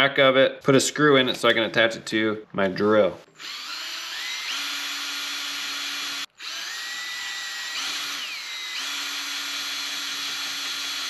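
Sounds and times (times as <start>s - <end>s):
electric drill whining: 3.4s - 11.0s.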